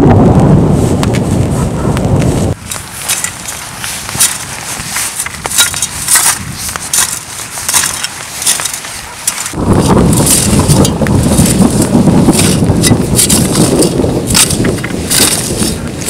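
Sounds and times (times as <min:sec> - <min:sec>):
wind rumble on microphone: 0:00.0 - 0:16.0
shovel digging and scraping soil: 0:01.8 - 0:16.0.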